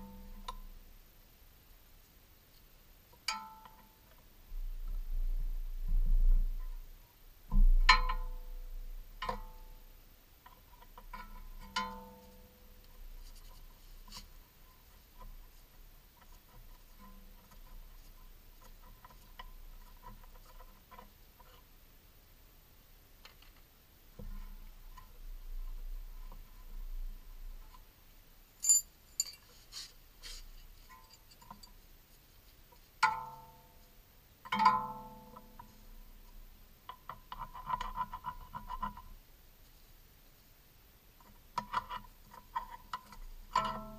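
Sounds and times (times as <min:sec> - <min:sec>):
metal tool clinking on steel: 0:28.6 - 0:29.5.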